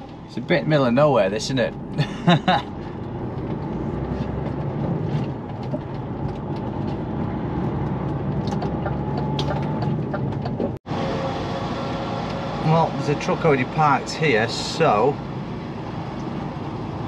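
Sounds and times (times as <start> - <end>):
lorry engine running: 0.0 - 17.0
road noise: 0.0 - 17.0.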